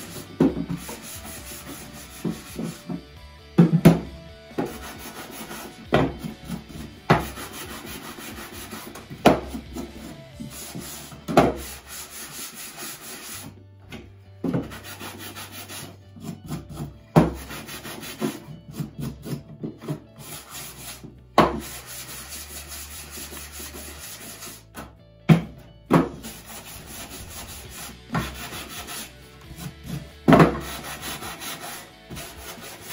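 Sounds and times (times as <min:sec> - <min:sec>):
sanding block rubbing wood: 0:00.0 - 0:03.1, 0:04.5 - 0:13.5, 0:14.5 - 0:24.7, 0:26.0 - 0:32.9.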